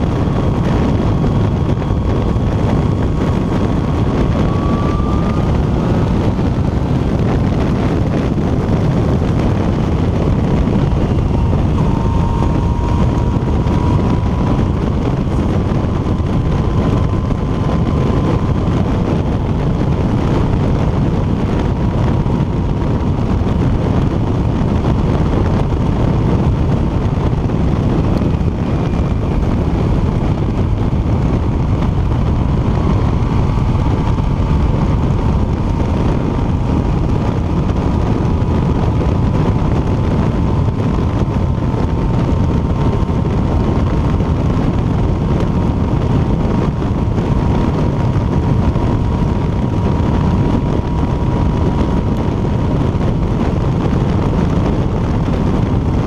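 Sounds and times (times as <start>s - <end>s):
motorcycle engine cruising: 0.0s - 56.0s
wind rush over microphone: 0.0s - 56.0s.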